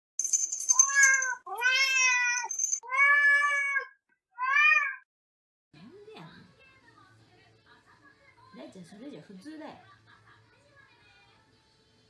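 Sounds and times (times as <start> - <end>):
cat meowing: 0.8 - 5.0.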